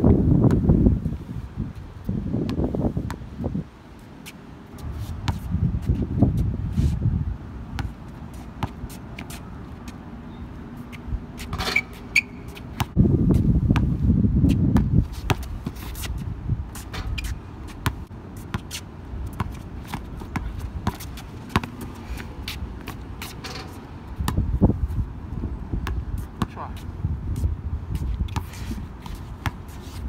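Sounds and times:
sneakers scuffing on court: 0:04.0 - 0:07.1, 0:07.8 - 0:10.0, 0:10.7 - 0:24.4, 0:26.2 - 0:30.0
sneaker squeaks: 0:07.8 - 0:13.0, 0:16.8 - 0:23.9
basketball bouncing: 0:17.8 - 0:18.7, 0:19.3 - 0:21.9.

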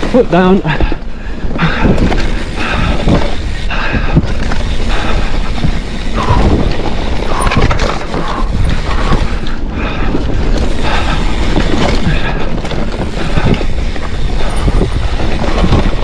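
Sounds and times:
bike rattling and knocking: 0:00.0 - 0:16.0
bike tyre noise: 0:00.0 - 0:16.0
wind over microphone: 0:00.7 - 0:16.0.

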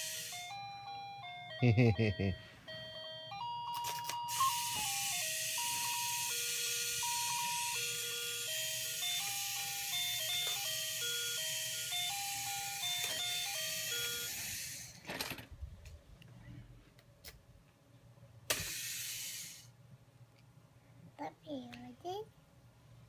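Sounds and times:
electronic toy beeping melody: 0:00.0 - 0:14.8.

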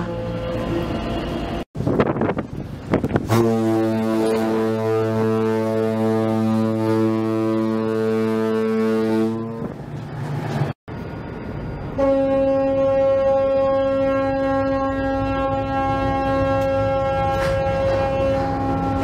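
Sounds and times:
higher-pitched ship horn: 0:00.0 - 0:01.2, 0:03.2 - 0:09.8, 0:12.0 - 0:19.0
low deep ship horn: 0:00.0 - 0:01.6, 0:03.2 - 0:09.8, 0:12.0 - 0:19.0.

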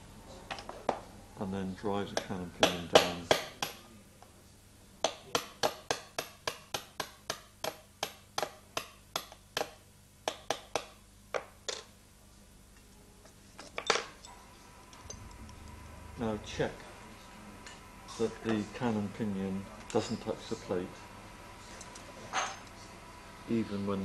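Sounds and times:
small hammer tapping a punch: 0:05.0 - 0:11.5.

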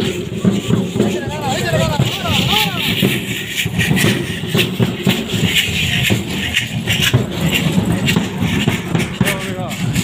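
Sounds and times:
rhythmic rattling and clicking: 0:00.0 - 0:10.0.

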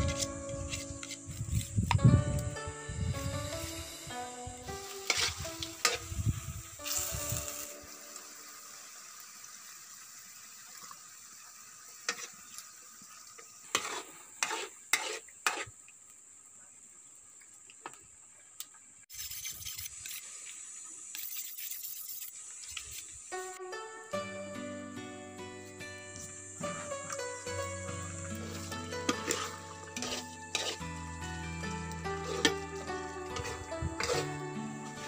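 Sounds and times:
food sizzling in a wok: 0:00.0 - 0:17.6, 0:19.0 - 0:24.3, 0:24.9 - 0:35.0
metal spatula scraping pan: 0:04.8 - 0:06.1, 0:13.7 - 0:15.7, 0:28.3 - 0:31.0, 0:32.1 - 0:34.5.

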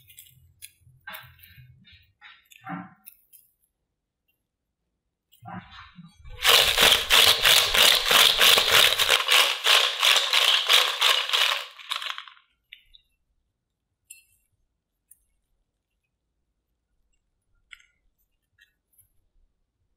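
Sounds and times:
chips rattling in glass bowl: 0:06.4 - 0:12.4.

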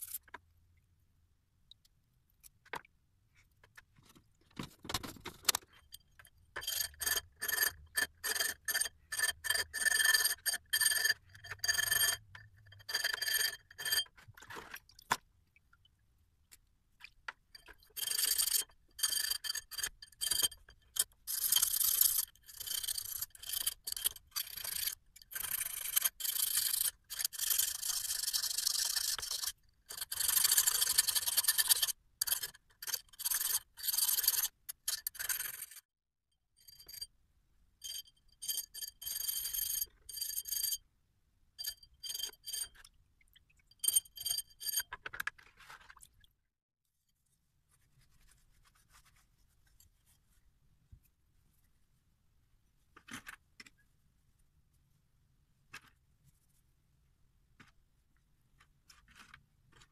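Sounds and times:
metal file rasping on metal: 0:06.6 - 0:14.1.

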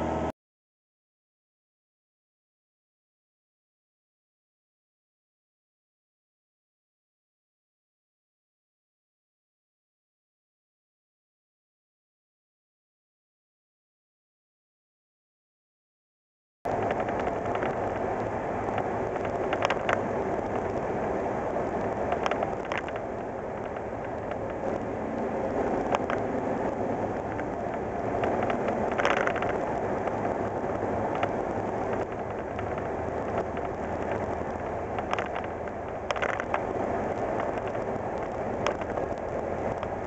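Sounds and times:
engine and road noise in cab: 0:00.0 - 0:00.4, 0:16.7 - 0:40.0
sharp clicks and rattles: 0:16.7 - 0:40.0.

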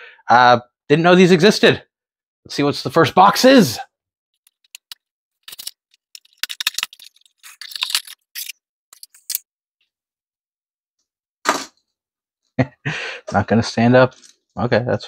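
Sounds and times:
packaging clicks: 0:04.5 - 0:09.4
plastic bag crinkling and tearing: 0:04.6 - 0:09.4.

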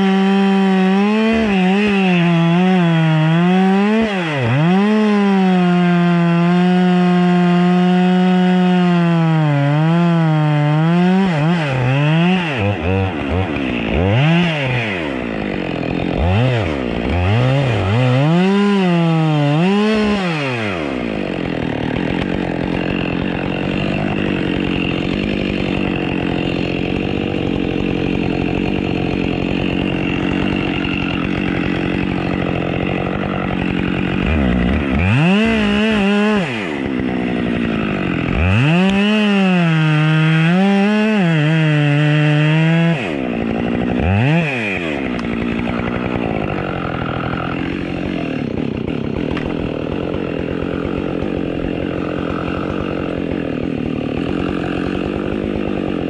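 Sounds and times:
chainsaw revving: 0:00.0 - 0:56.0.

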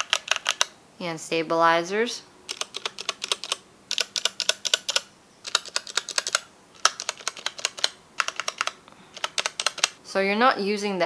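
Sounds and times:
mechanical keyboard clicks: 0:00.0 - 0:00.7, 0:02.5 - 0:10.0.

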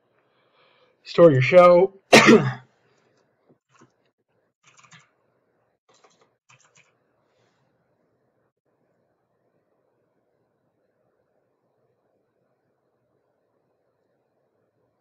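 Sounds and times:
faint keyboard typing: 0:03.0 - 0:05.2, 0:05.9 - 0:07.6.

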